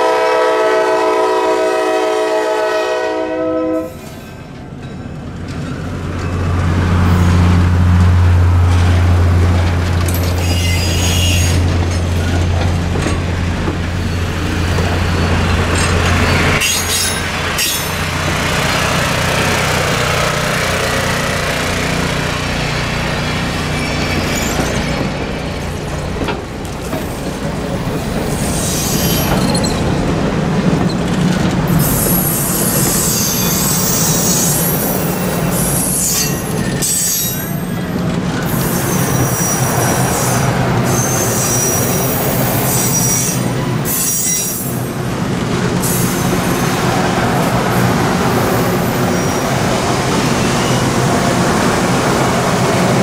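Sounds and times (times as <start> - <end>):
train cars rolling on rails: 0.0 - 53.0
high-pitched wheel squeal: 10.2 - 11.7, 23.7 - 25.0, 28.3 - 29.8, 35.6 - 37.7, 38.5 - 44.8.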